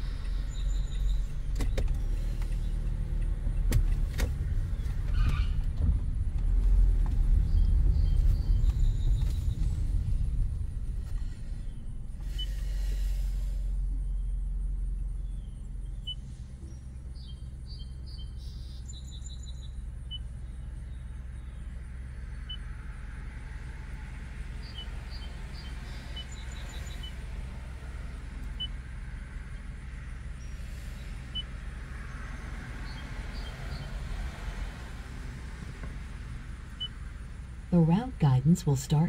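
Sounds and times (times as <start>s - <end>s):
car engine idling: 0.0s - 39.0s
birds chirping: 24.6s - 27.2s.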